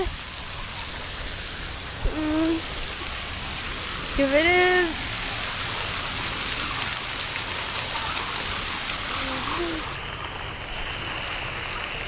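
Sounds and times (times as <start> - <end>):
water spray jets rushing: 0.0 - 12.0.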